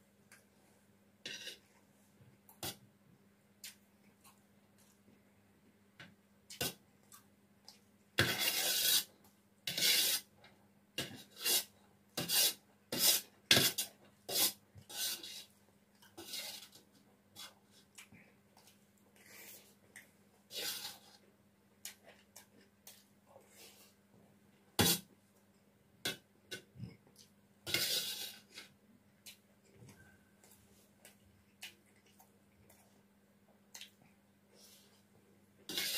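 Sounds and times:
metal spoon scraping plate: 1.3s - 1.6s.

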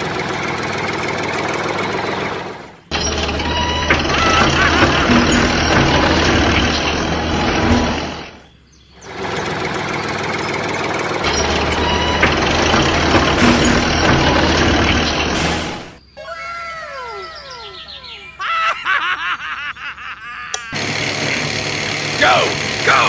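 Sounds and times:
heavy engine running: 0.0s - 16.0s, 20.6s - 23.0s.

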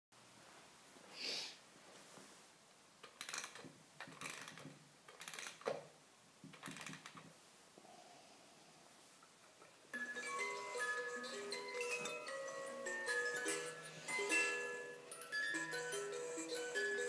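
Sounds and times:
clockwork ratcheting clicks: 3.0s - 5.7s.

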